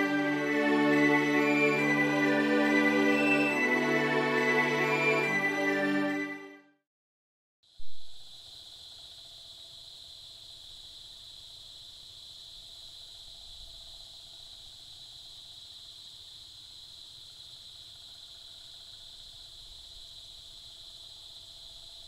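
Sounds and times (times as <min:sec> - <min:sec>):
insects buzzing: 0:08.2 - 0:22.0.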